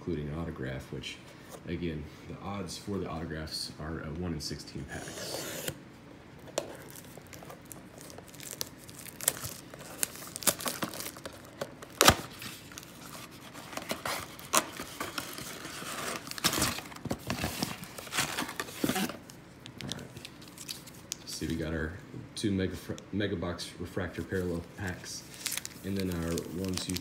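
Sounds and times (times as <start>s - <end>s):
foil packs rustling: 6.7s - 19.3s, 24.1s - 27.0s
shrink wrap and cardboard tearing: 6.7s - 19.3s, 24.3s - 27.0s.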